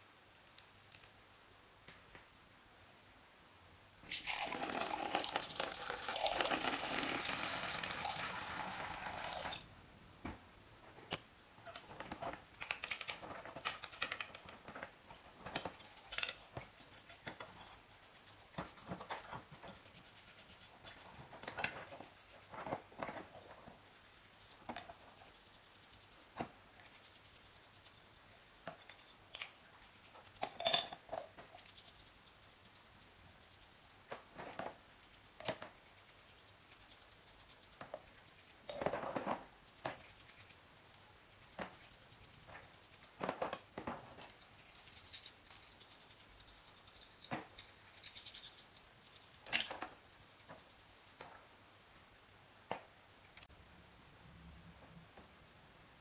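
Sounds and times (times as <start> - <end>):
brush scrubbing metal parts: 15.2 - 30.5, 39.6 - 43.2, 44.1 - 51.2.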